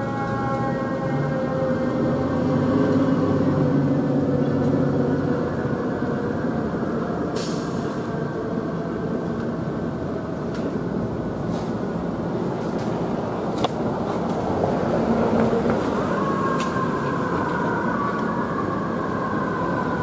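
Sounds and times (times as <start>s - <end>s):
air brakes hissing: 7.3s - 8.1s.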